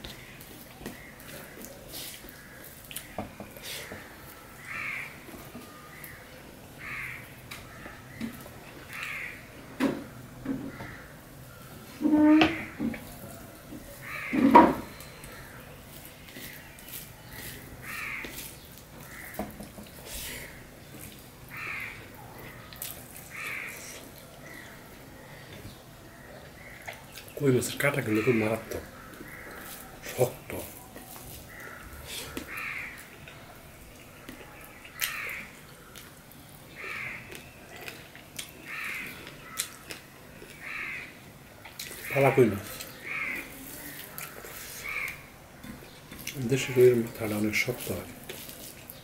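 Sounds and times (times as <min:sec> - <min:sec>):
food squishing by hand: 0:00.0 - 0:12.0, 0:12.6 - 0:49.0
crows cawing: 0:03.7 - 0:06.2, 0:06.8 - 0:08.3, 0:08.9 - 0:09.5, 0:10.4 - 0:11.6, 0:14.0 - 0:15.6, 0:17.8 - 0:18.4, 0:19.0 - 0:19.7, 0:21.5 - 0:22.7, 0:23.3 - 0:25.4, 0:26.1 - 0:27.0, 0:27.8 - 0:30.3, 0:31.5 - 0:33.2, 0:34.9 - 0:35.6, 0:36.7 - 0:37.4, 0:38.6 - 0:39.8, 0:40.6 - 0:41.2, 0:41.9 - 0:45.3
fingers mixing food on a steel plate: 0:41.7 - 0:49.0.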